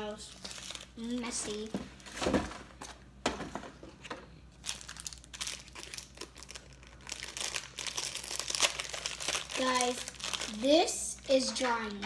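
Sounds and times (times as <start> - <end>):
plastic wrapper crinkling: 0.0 - 2.1, 4.5 - 12.0.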